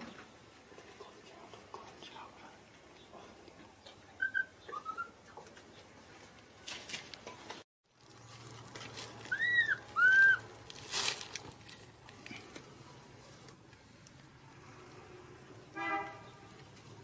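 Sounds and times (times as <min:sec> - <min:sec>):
rustle: 0:00.0 - 0:17.0
baby monkey cooing cries: 0:09.3 - 0:10.4.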